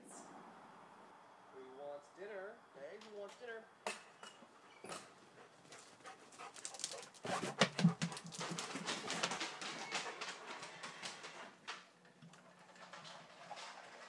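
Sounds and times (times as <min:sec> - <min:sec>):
dogs panting: 0:04.6 - 0:11.9
dogs crunching kibble: 0:05.6 - 0:14.0.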